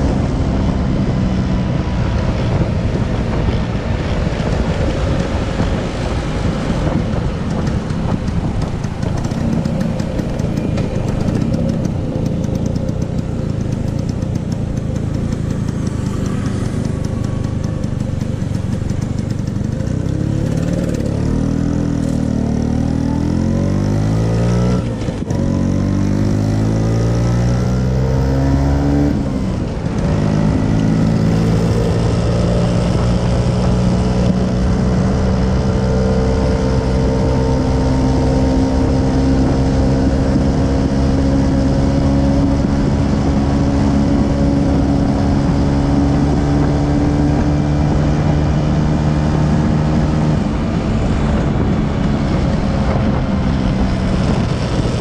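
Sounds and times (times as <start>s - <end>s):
scooter engine accelerating: 0.0s - 55.0s
wind rushing over microphone: 0.0s - 55.0s.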